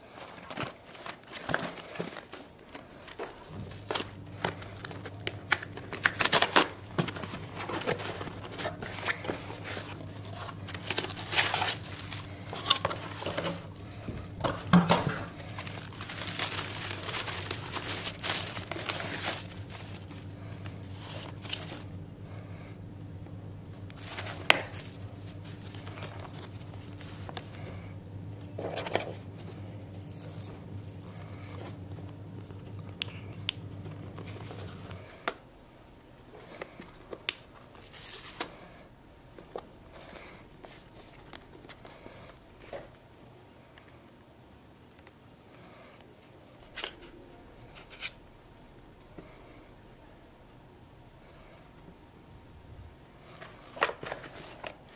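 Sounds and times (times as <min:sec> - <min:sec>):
boxes being handled: 0:00.0 - 0:22.0, 0:23.8 - 0:35.4, 0:53.3 - 0:54.9
paper packing wrap crinkling: 0:00.0 - 0:22.0, 0:23.8 - 0:27.9, 0:28.5 - 0:35.4, 0:36.4 - 0:42.9, 0:53.2 - 0:54.9
steady low hum: 0:00.0 - 0:54.9
cardboard box tearing: 0:03.7 - 0:13.7.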